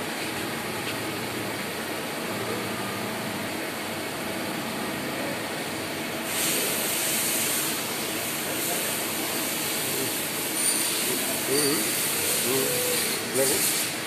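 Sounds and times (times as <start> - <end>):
loud hiss: 6.2 - 14.0
lathes running: 7.4 - 14.0.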